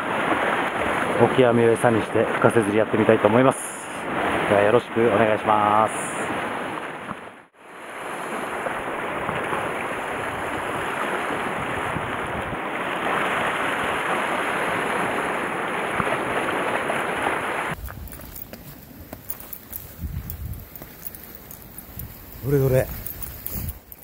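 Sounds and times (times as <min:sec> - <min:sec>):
surf rushing on rocky shore: 0:00.0 - 0:17.8
faint ticks: 0:17.8 - 0:24.0.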